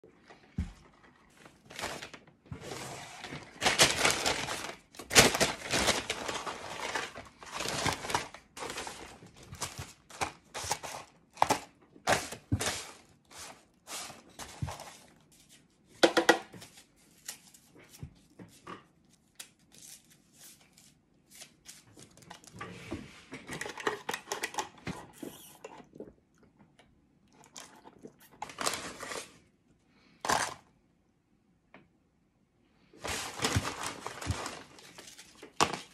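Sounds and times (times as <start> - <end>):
paper bag and wrappers rustling: 0.3 - 16.0, 27.6 - 29.5, 30.2 - 30.6, 33.0 - 35.9
paper wrapper tearing: 1.6 - 12.4, 33.0 - 35.9.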